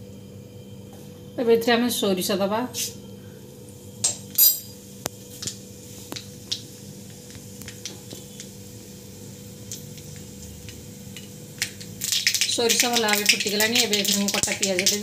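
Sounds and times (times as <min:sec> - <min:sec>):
mustard seeds popping in hot oil: 0:05.0 - 0:15.0.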